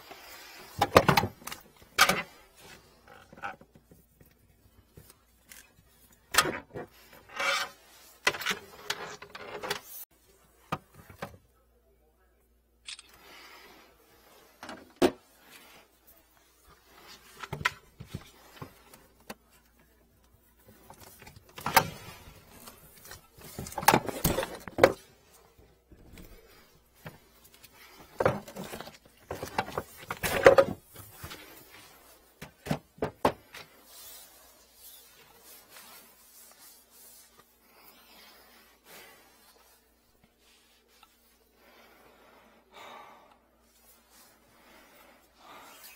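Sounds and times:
plastic hoses rubbing and knocking: 16.8s - 37.6s.

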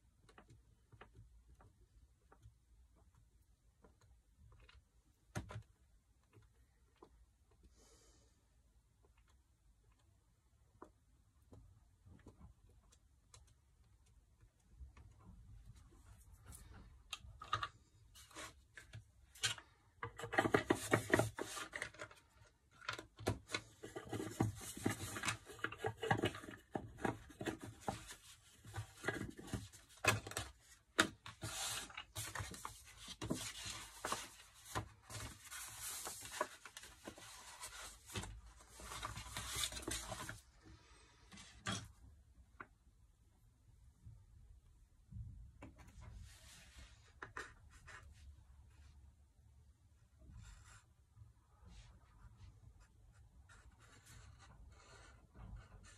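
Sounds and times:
paper rustling and scraping: 22.8s - 40.4s.

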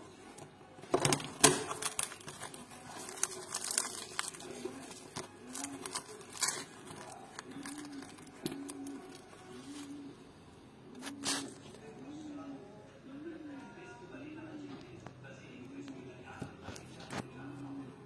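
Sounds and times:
pastry crackling as torn apart: 1.0s - 10.1s, 11.0s - 11.7s.

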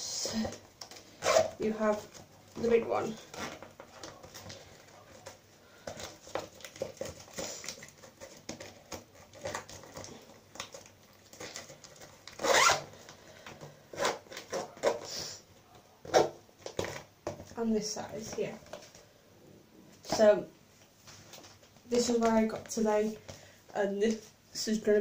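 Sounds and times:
plastic rustling: 0.2s - 15.4s, 16.0s - 19.2s, 19.9s - 24.4s
zipper on plastic bag: 0.4s - 4.3s, 9.1s - 13.1s.

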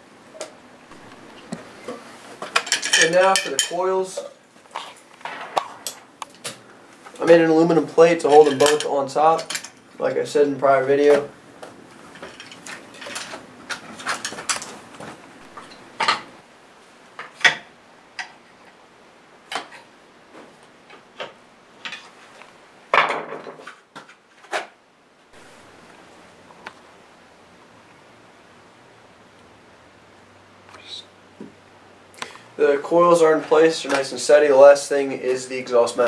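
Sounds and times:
quiet hiss: 0.0s - 36.0s
small metal parts clinking: 2.6s - 3.8s.

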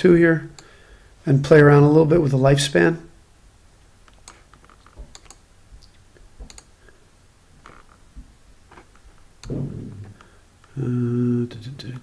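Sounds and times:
computer mouse clicks: 4.0s - 6.7s.

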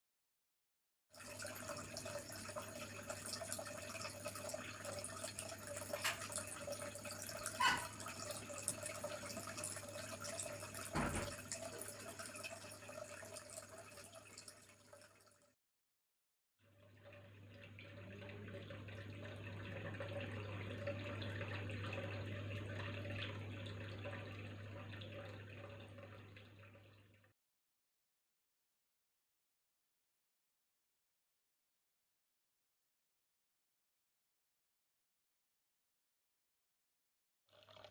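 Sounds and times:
water splashing into fish tank: 1.2s - 15.5s, 16.8s - 27.3s.

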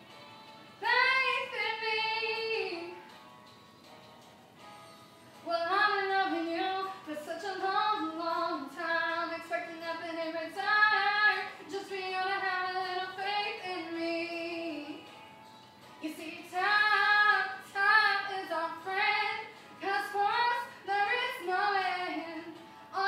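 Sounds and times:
girl singing unaccompanied: 5.5s - 15.1s, 16.0s - 23.0s.

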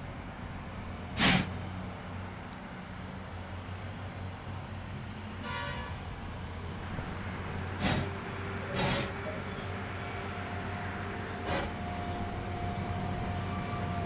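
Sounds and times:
short horn toot: 5.4s - 6.0s.

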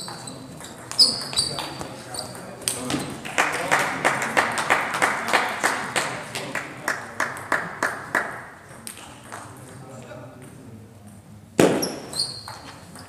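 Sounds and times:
hands clapping: 2.6s - 9.5s.

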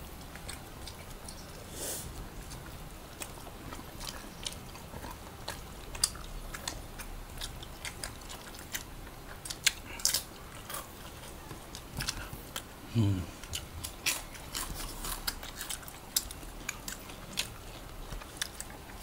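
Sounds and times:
people chewing food: 0.0s - 19.0s.

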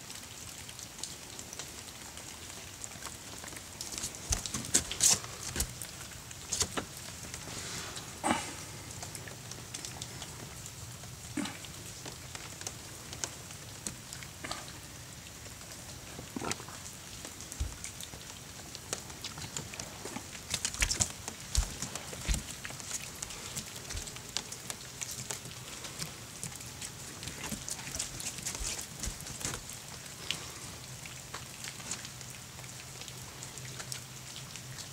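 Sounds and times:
dog claws clicking on wooden deck: 3.8s - 6.9s, 20.5s - 24.5s.

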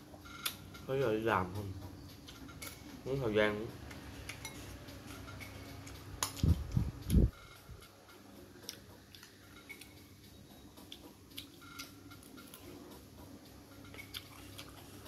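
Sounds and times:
spoon scraping ceramic bowl: 4.3s - 5.5s
dull low thumps: 6.4s - 7.4s.

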